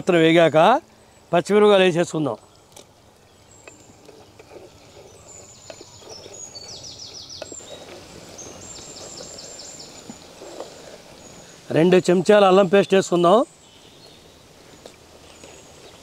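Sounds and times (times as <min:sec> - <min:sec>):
bird singing high notes: 0:12.8 - 0:14.5.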